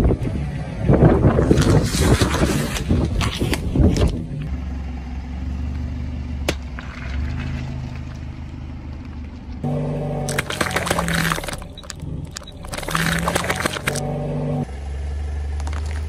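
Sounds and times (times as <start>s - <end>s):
car engine idling: 4.1s - 16.0s
plastic tubs cracking under tyre: 6.4s - 9.3s, 10.3s - 14.0s, 15.6s - 16.0s.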